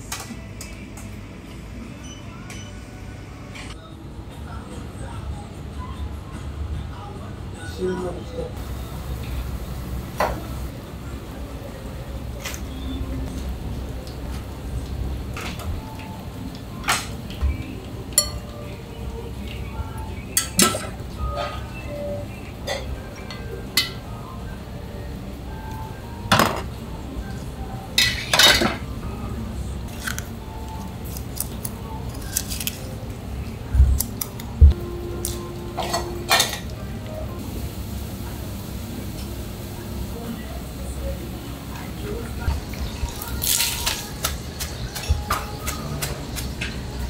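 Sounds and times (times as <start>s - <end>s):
kitchenware clanking: 26.3s - 26.7s, 28.0s - 28.9s, 35.8s - 36.7s.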